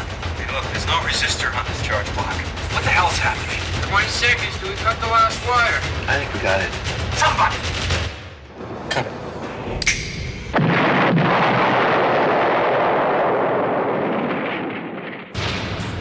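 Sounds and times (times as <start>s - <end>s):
car explosion blast: 10.5s - 16.0s.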